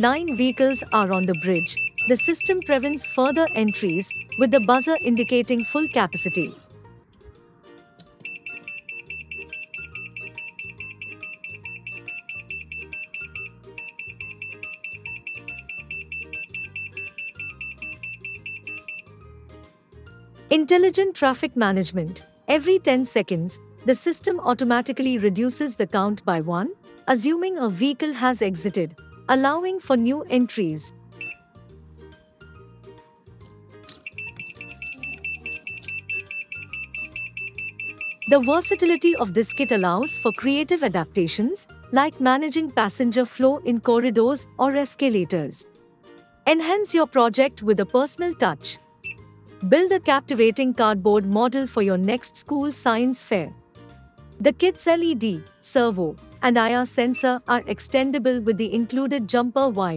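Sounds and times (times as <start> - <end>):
buzzer beeping rapidly: 0.0 - 6.6, 8.2 - 19.1, 31.2 - 31.4, 34.0 - 40.6, 49.0 - 49.2
background music: 0.0 - 59.9.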